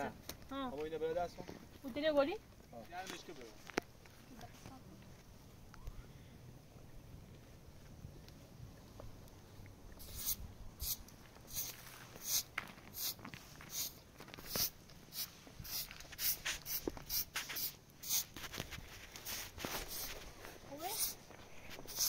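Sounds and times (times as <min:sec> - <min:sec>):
scraping strokes: 0:10.0 - 0:22.0.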